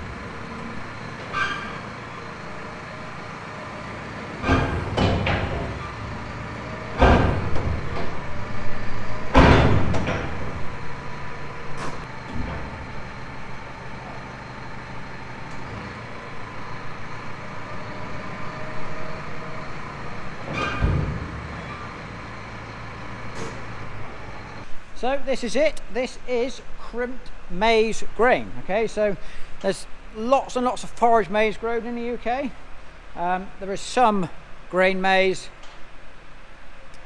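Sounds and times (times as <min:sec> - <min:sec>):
metal trailer clanks: 0:00.0 - 0:24.7
tractor engine running: 0:00.0 - 0:34.7.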